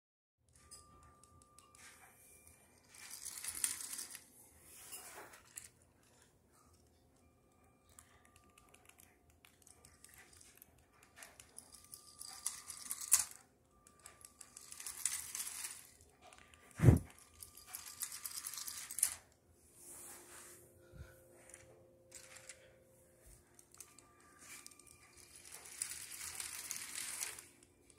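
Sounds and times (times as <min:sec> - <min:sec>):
toy train electric motor: 0:02.8 - 0:04.2, 0:09.8 - 0:19.3, 0:21.5 - 0:22.6, 0:23.6 - 0:27.7
plastic wheels clattering on track: 0:02.9 - 0:04.2, 0:14.0 - 0:16.5, 0:23.8 - 0:27.7.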